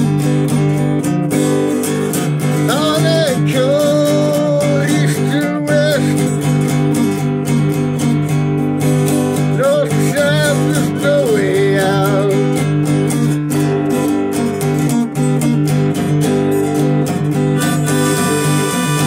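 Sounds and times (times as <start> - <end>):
acoustic guitar strumming: 0.0 - 19.0
harmonica playing: 17.1 - 19.0.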